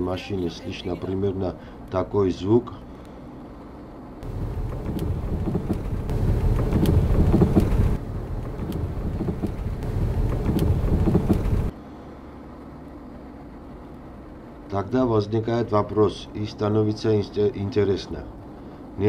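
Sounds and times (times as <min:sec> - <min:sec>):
person speaking: 0:00.0 - 0:01.4
road rumble inside car: 0:03.4 - 0:14.8
sharp knocks from car front end: 0:04.2 - 0:11.7.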